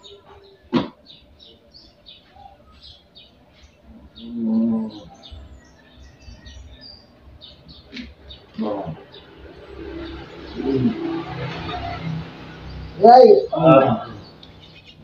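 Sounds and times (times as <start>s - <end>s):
small birds chirping: 0.0s - 15.0s
low drawn-out moan: 3.9s - 5.4s, 10.5s - 11.6s.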